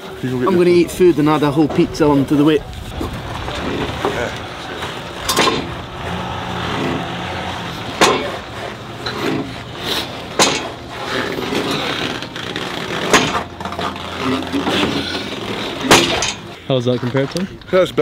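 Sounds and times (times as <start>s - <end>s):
steel frame clanking: 2.9s - 16.6s
sharp knocks: 5.2s - 5.9s, 8.0s - 8.5s, 10.4s - 10.8s, 15.8s - 16.4s.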